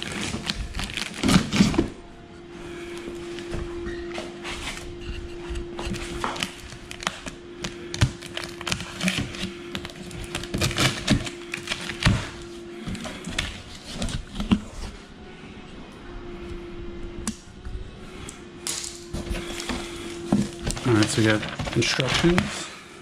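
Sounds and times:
steady hum: 0:00.0 - 0:23.0
knife cutting packing tape: 0:05.9 - 0:12.4.

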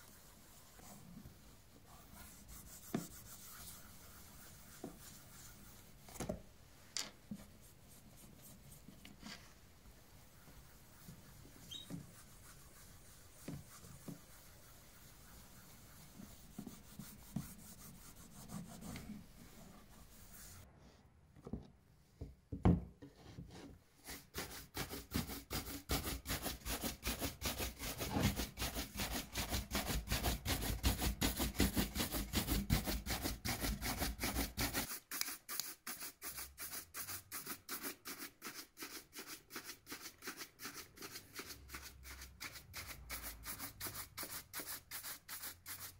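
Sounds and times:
cloth rubbing leather shoe: 0:10.2 - 0:20.6
knock: 0:21.5 - 0:22.9.

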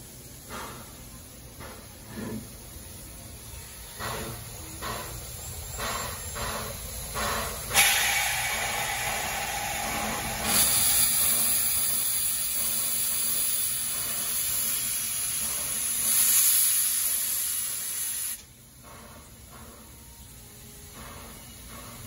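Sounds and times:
steam hissing: 0:00.0 - 0:22.0.

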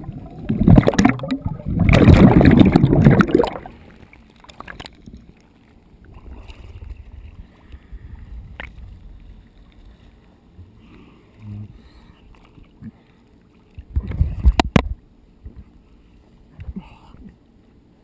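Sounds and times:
splashing: 0:00.0 - 0:05.0
water lapping against camera: 0:00.0 - 0:17.8.

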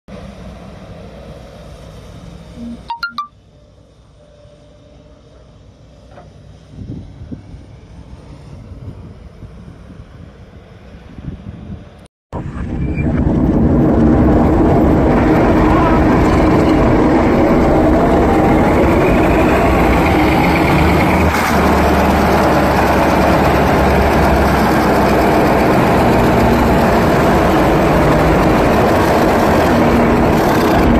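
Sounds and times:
diesel engine running: 0:12.4 - 0:30.9.

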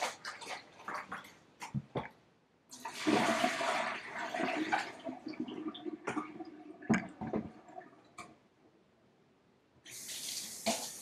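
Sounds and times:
water gushing into plastic bucket: 0:00.0 - 0:01.4, 0:02.7 - 0:08.2.

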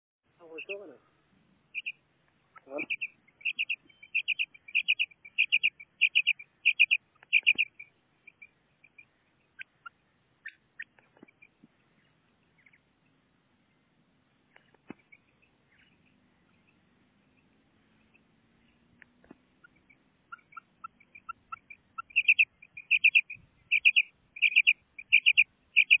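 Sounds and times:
faint chirps: 0:00.3 - 0:26.0
quail calling high notes: 0:00.4 - 0:01.1, 0:01.7 - 0:11.0, 0:19.6 - 0:26.0
soft clicks: 0:07.2 - 0:09.1, 0:18.9 - 0:20.0.

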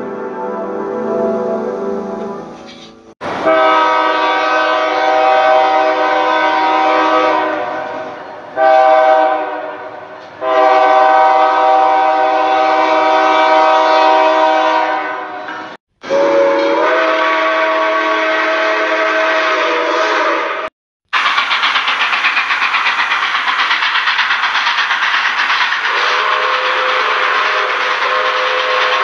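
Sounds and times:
train horn blasts: 0:00.0 - 0:02.6, 0:03.3 - 0:20.7, 0:25.9 - 0:29.0.

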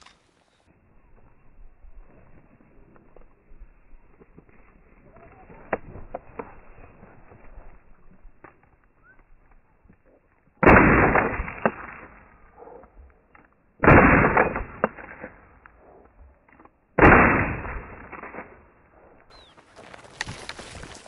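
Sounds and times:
shotgun blasts: 0:10.6 - 0:12.8, 0:13.8 - 0:15.6, 0:17.0 - 0:18.7.

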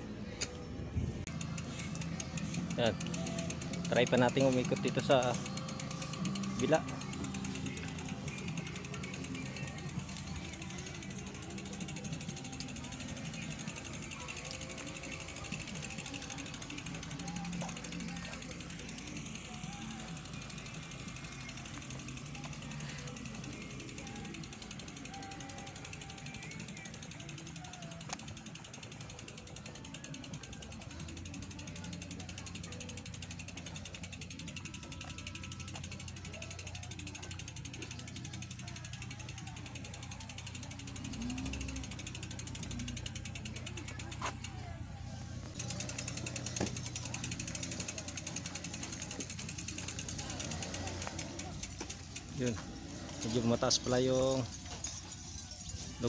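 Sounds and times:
bicycle freewheel clicking: 0:01.2 - 0:56.0.

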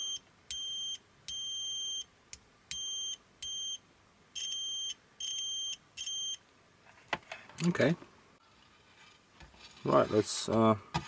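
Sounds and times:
multimeter high-pitched beeps: 0:00.0 - 0:02.1, 0:02.7 - 0:03.8, 0:04.4 - 0:06.4.

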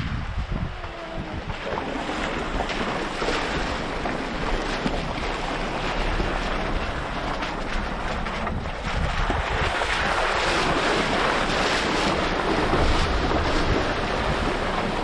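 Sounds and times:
car rumbling on rough road: 0:00.0 - 0:15.0
wind rushing over microphone: 0:00.0 - 0:15.0.

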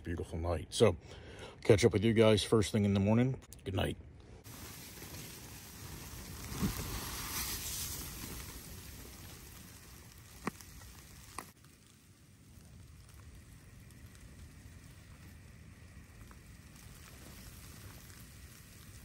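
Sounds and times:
wind gusting against a tent: 0:04.4 - 0:11.6
snow hitting tent fabric: 0:04.4 - 0:11.9.

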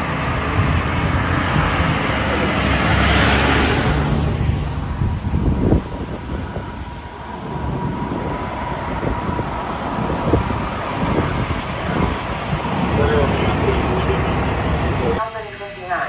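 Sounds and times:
heavy vehicle engine rumbling: 0:00.0 - 0:16.0
thin steady whine: 0:03.7 - 0:16.0.

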